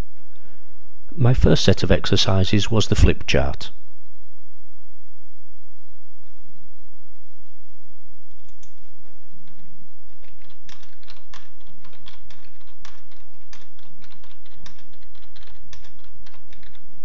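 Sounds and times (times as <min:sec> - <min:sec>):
steady low hum: 0:00.0 - 0:17.0
computer keyboard typing: 0:08.3 - 0:17.0.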